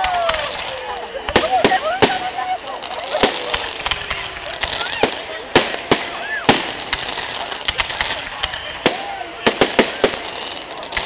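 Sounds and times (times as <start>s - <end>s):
fireworks shells bursting: 0.0s - 11.0s.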